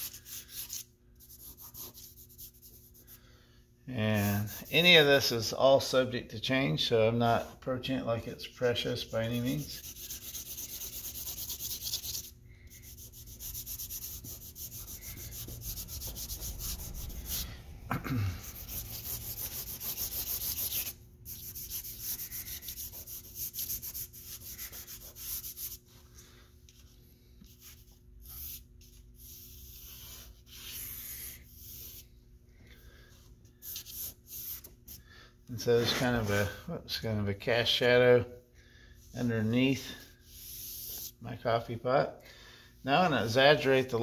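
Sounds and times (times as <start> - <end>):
charcoal scratching on paper: 0.0 - 3.2, 4.2 - 4.8, 9.0 - 17.5, 18.4 - 26.0, 27.4 - 32.1.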